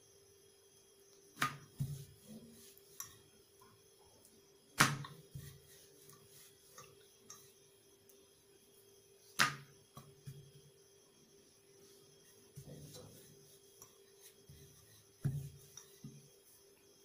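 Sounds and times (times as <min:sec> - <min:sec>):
hands pressing dough: 0:01.4 - 0:03.1, 0:04.8 - 0:07.5, 0:09.4 - 0:10.6.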